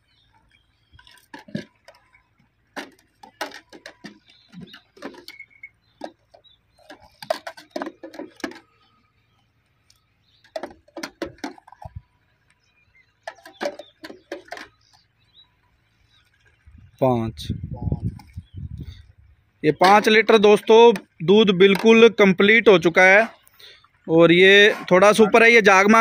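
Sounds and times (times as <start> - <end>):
metal mug clinking on buckets: 1.0 - 8.8, 10.4 - 12.0, 13.2 - 14.9.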